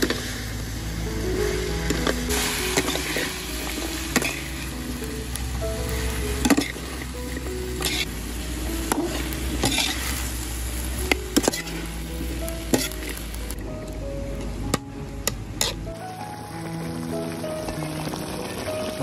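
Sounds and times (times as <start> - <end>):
food sizzling in a hot pan: 0.0 - 13.6, 15.6 - 19.0
spatula scraping a pan: 7.8 - 8.1, 8.9 - 11.9, 12.7 - 13.2.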